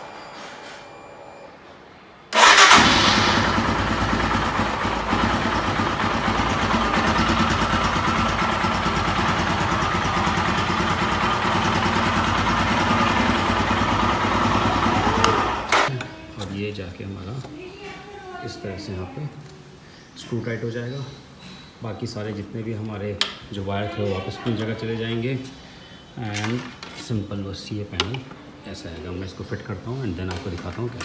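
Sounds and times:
motorcycle engine starting: 2.3s - 15.9s
motorcycle engine idling: 2.4s - 15.8s.

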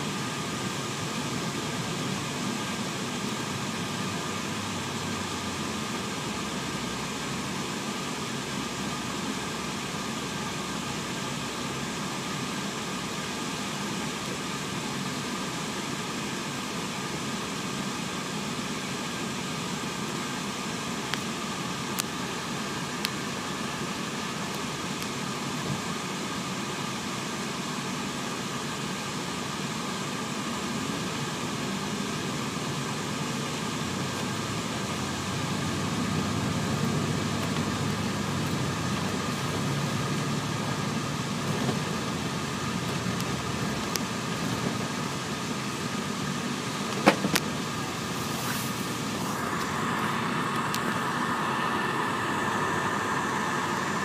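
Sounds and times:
coach engine and road noise: 0.0s - 54.0s
even hiss: 45.5s - 54.0s.

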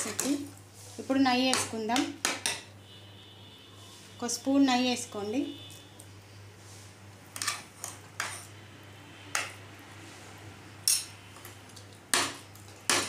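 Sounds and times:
spoon scraping metal pot: 7.4s - 8.6s.

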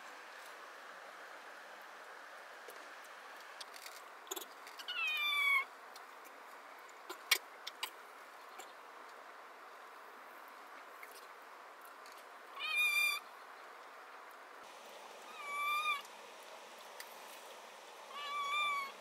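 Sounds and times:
background hiss: 0.0s - 19.0s.

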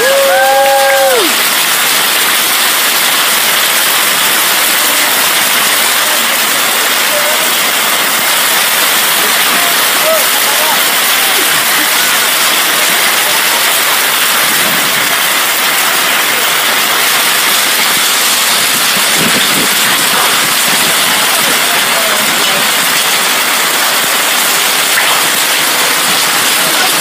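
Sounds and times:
heavy rain pouring: 0.0s - 27.0s.

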